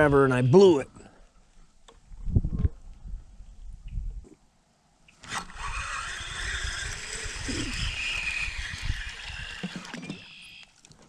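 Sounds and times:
fishing reel whirring: 0:05.2 - 0:10.8.

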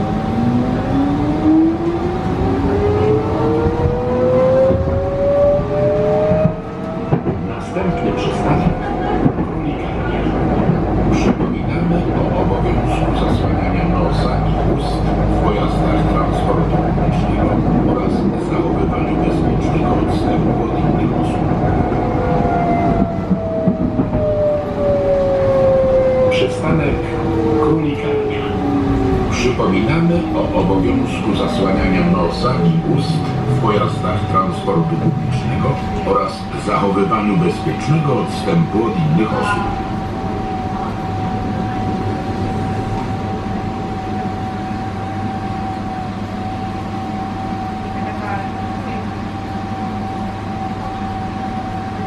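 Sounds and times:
tram drive whining: 0:00.0 - 0:52.0
wheels rumbling on rails: 0:00.0 - 0:52.0.

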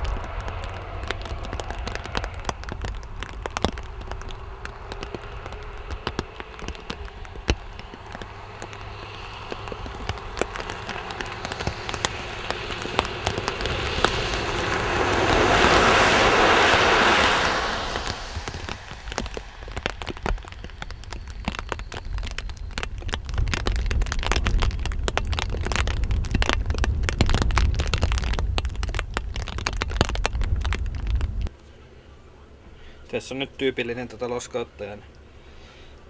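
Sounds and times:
lorry tyres hissing on wet road: 0:00.0 - 0:31.5
rain drops ticking: 0:00.0 - 0:31.6
low steady rumble: 0:00.0 - 0:33.6.

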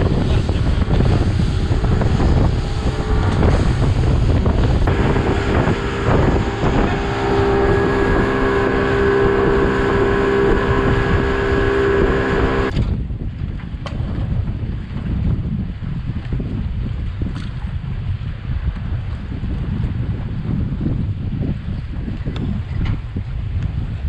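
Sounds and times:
outboard motor droning: 0:00.0 - 0:12.9
water rushing past hull: 0:00.0 - 0:13.1
wind buffeting the microphone: 0:00.0 - 0:24.0.

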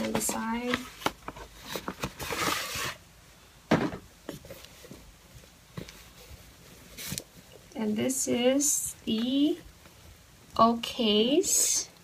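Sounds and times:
box and cloth bag rustling: 0:00.0 - 0:03.0, 0:04.3 - 0:07.6.

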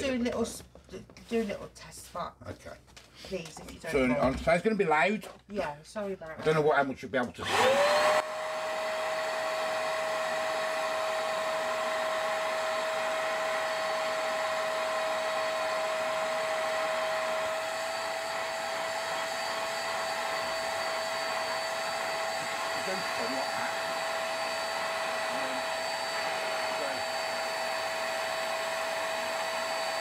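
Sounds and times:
carpet cleaner suction whine: 0:07.4 - 0:30.0.

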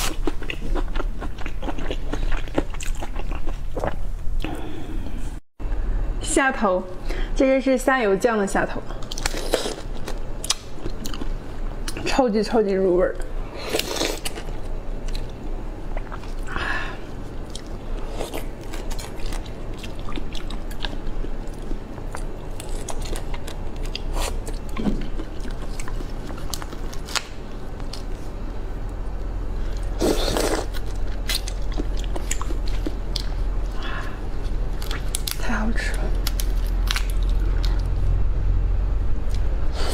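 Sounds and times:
chewing and crunching shrimp shells: 0:00.0 - 0:04.0, 0:09.0 - 0:12.0, 0:17.2 - 0:28.2, 0:29.0 - 0:38.1.

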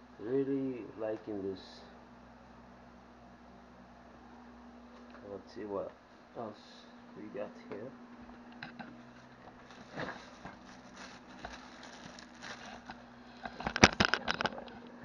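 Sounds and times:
loud crackles and knocks: 0:08.6 - 0:14.8
plastic wrapping rustling: 0:09.0 - 0:14.8.

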